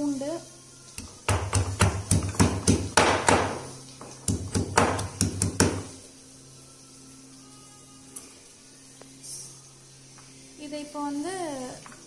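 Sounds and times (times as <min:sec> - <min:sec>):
stone pestle pounding in mortar: 0:01.0 - 0:06.0.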